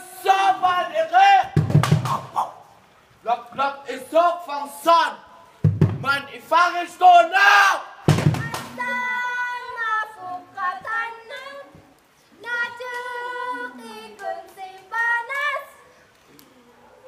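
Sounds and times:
high voice singing unaccompanied: 8.3 - 15.9.

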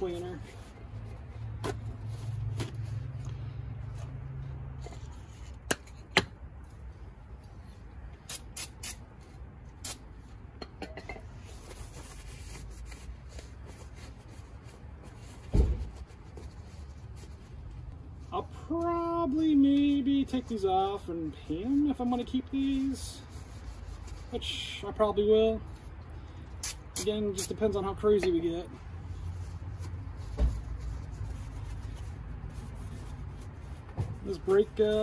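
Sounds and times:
dull thump: 15.4 - 16.0.

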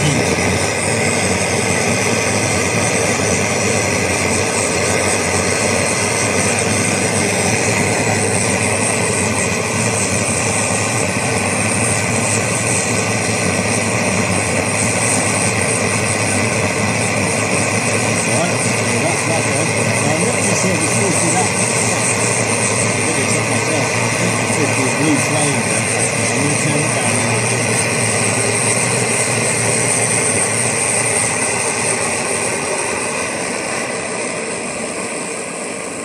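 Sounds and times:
camping stove roaring: 0.0 - 36.0.

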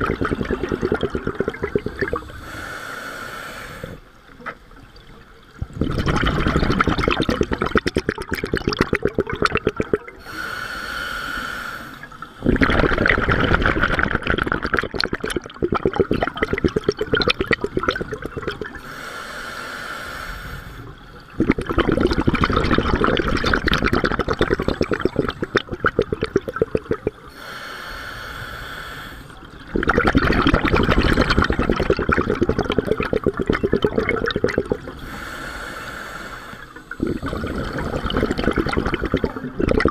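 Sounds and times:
bubbling underwater exhalations: 0.0 - 2.4, 5.6 - 10.3, 12.4 - 18.8, 21.2 - 27.3, 29.4 - 35.2, 36.9 - 39.9
regulator hissing inhalations: 1.8 - 4.2, 10.2 - 12.6, 18.8 - 21.4, 27.2 - 29.6, 34.6 - 39.6.

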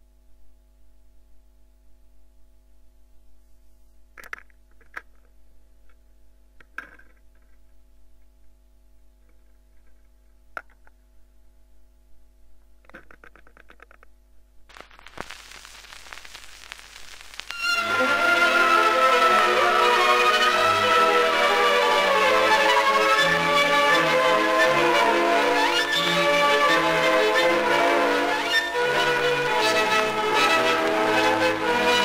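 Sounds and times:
record groove hiss and crackle: 12.1 - 32.0.

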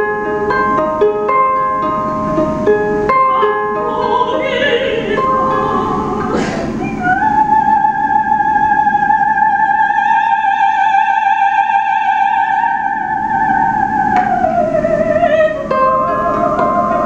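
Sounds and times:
ukulele strumming: 0.0 - 7.0
soprano voice singing high note: 3.2 - 17.0.

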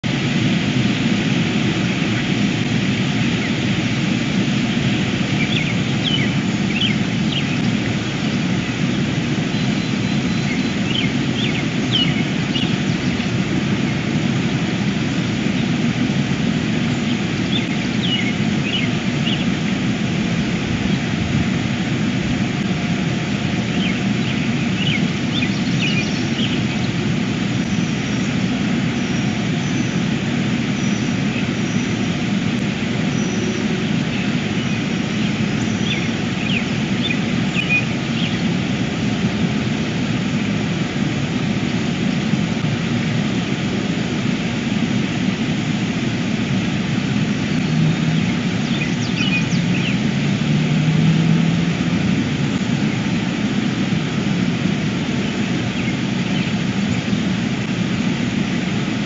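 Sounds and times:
low rumbling background noise: 0.0 - 59.0
ospreys chirping: 0.5 - 21.2, 22.0 - 39.2, 46.8 - 51.3.

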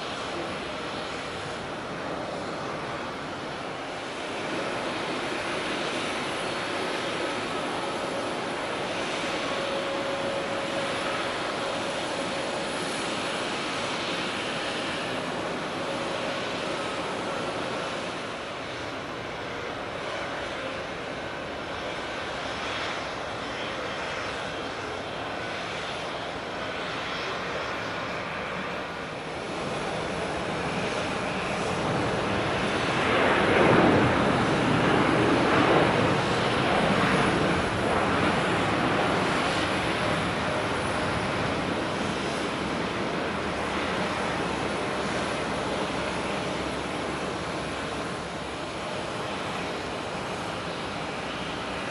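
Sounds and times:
jet airliner passing: 0.0 - 51.9.

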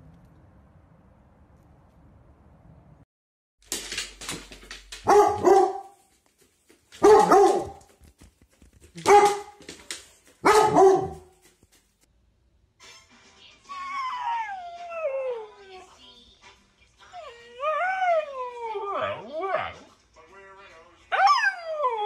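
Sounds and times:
dog barking: 5.0 - 6.0, 7.0 - 7.9, 9.0 - 9.6, 10.4 - 11.4.

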